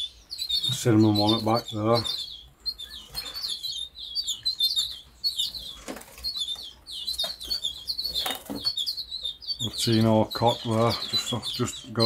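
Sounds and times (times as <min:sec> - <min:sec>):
caged birds chirping: 0:00.0 - 0:12.0.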